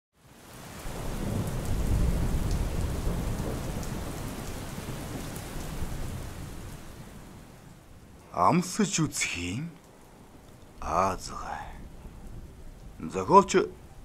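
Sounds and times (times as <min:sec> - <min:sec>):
steady rain falling: 0:00.2 - 0:14.0
low rumble of thunder: 0:00.8 - 0:08.2, 0:11.3 - 0:14.0.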